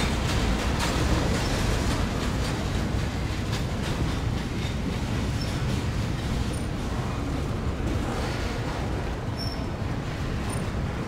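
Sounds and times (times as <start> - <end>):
freight train rolling on rails: 0.0 - 11.0.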